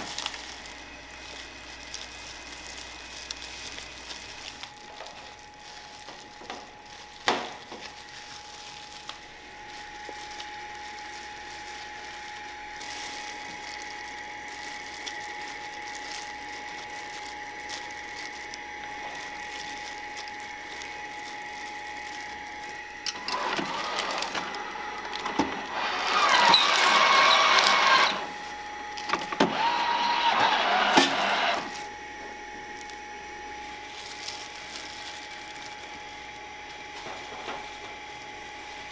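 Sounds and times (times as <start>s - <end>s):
rolling machine running: 0.0s - 38.9s
steady high hum: 0.0s - 38.9s.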